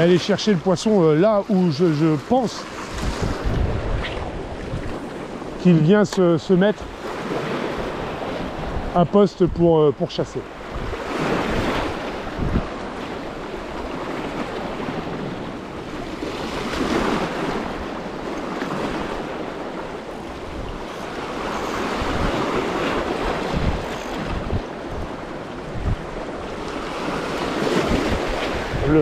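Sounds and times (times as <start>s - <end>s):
wind buffeting microphone: 0.0s - 9.7s, 10.4s - 29.0s
sea surf washing in: 0.0s - 29.0s.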